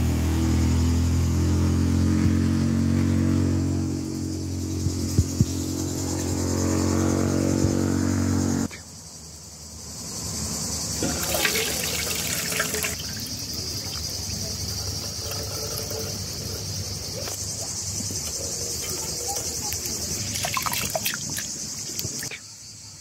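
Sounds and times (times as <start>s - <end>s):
insects chirping: 0.0s - 23.0s
water splashing through colander: 11.0s - 22.3s.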